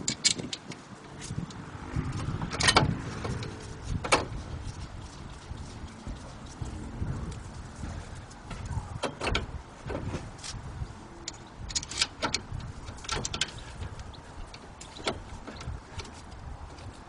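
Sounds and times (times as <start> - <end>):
metallic clicks and knocks: 0.0 - 6.6, 8.5 - 10.6, 11.2 - 17.0
low rumble: 1.2 - 11.8.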